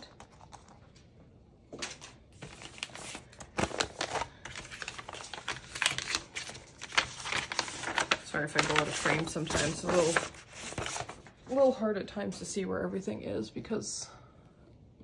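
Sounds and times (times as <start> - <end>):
plastic packaging clicks and crinkles: 1.8 - 11.3.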